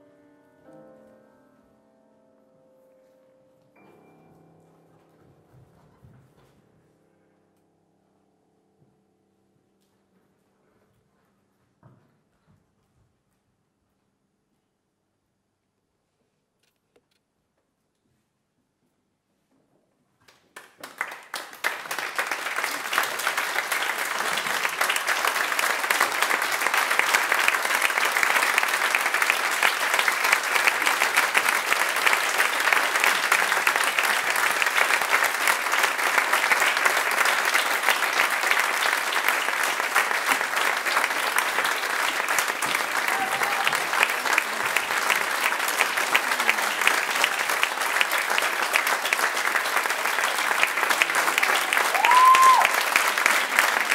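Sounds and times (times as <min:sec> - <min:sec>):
audience applauding: 0:20.3 - 0:53.9.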